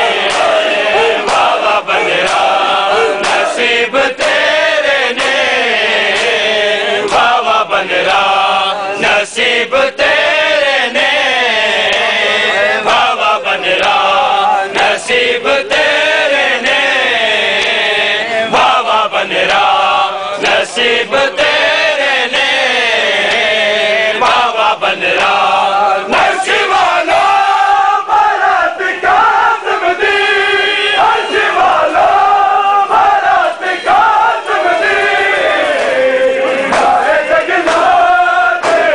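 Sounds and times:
crowd of men chanting: 0.0s - 38.9s
hands slapping bare chests: 0.2s - 2.6s, 3.2s - 4.5s, 36.6s - 38.9s.

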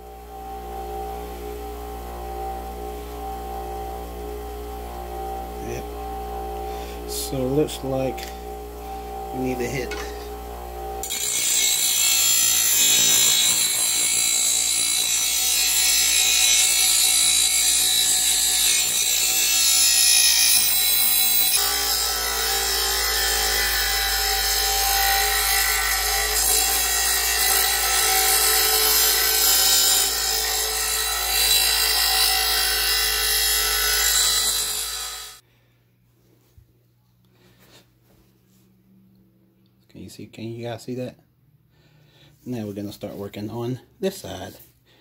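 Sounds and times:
grinder motor hum: 0.0s - 35.4s
grinding wheel rasping on steel: 0.0s - 35.4s.

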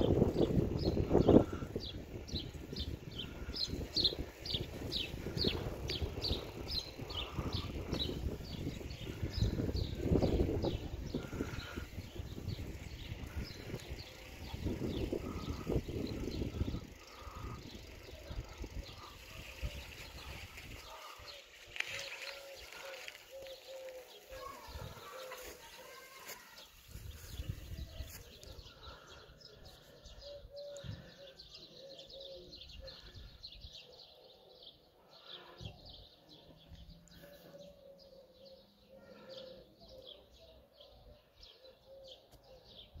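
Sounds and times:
wind rumbling on microphone: 0.0s - 23.6s, 26.8s - 29.1s.

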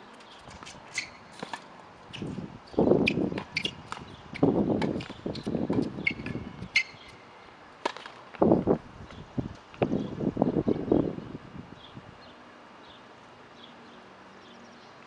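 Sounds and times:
racket hitting tennis ball: 0.5s - 7.2s, 7.8s - 8.3s.

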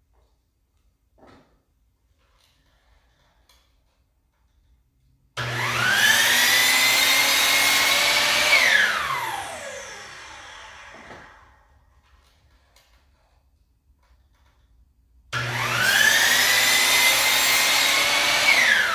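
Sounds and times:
miter saw motor whining: 5.4s - 11.6s, 15.4s - 18.9s.

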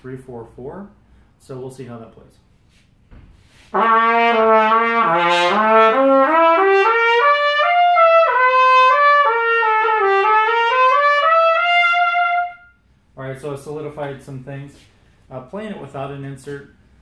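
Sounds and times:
trumpet playing rising notes: 3.7s - 12.8s.

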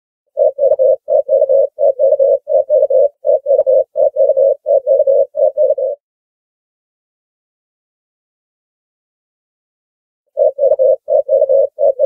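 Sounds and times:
dove cooing: 0.4s - 6.0s, 10.4s - 12.0s.

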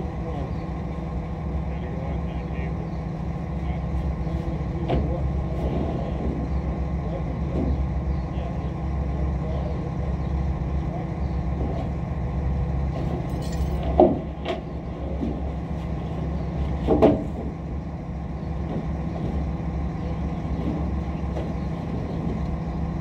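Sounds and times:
truck engine idling: 0.0s - 23.0s.

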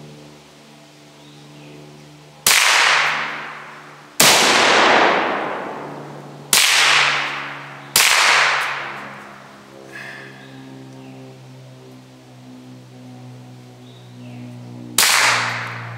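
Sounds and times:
rifle shots echoing: 2.4s - 9.2s, 15.0s - 15.9s.

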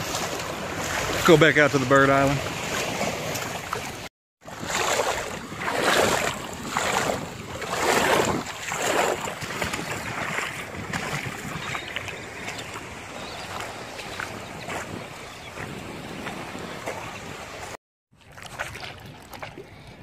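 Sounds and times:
small waves lapping: 0.0s - 20.0s
wind buffeting microphone: 4.5s - 17.7s.

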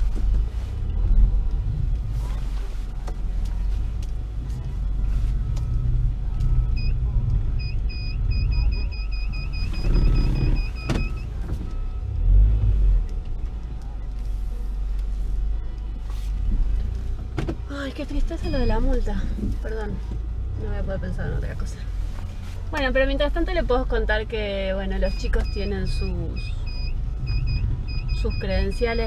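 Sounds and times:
truck engine rumble: 0.0s - 29.0s
electronic warning chime beeping: 7.6s - 12.0s, 25.1s - 29.0s.

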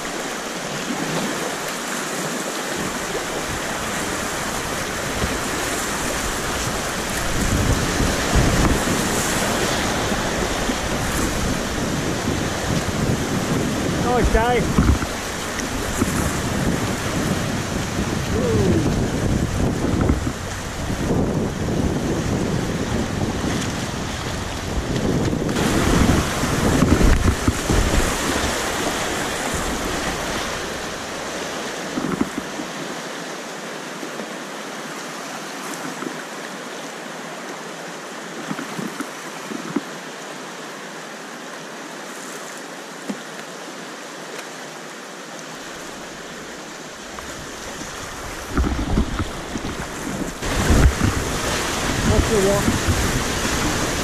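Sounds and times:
river rapids rushing: 0.0s - 54.0s
wind buffeting microphone: 2.8s - 32.6s, 47.0s - 54.0s.

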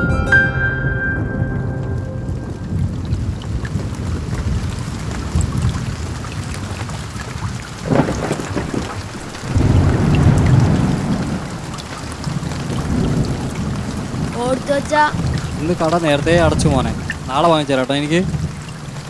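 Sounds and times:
low thunder rumble: 1.2s - 19.0s
sharp thunder crackle: 1.2s - 19.0s
heavy rain falling: 1.6s - 19.0s.

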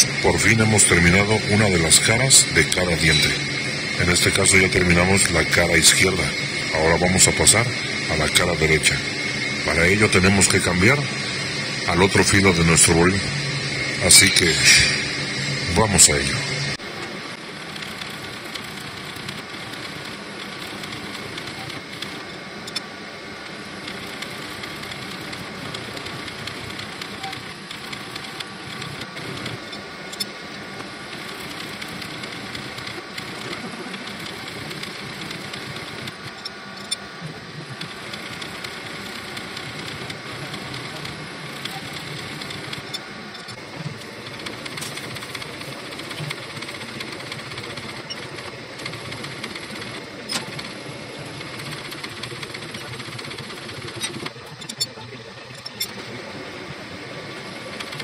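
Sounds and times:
sharp machine clicks: 0.0s - 16.9s, 17.7s - 22.9s, 23.8s - 56.0s, 57.5s - 58.0s.

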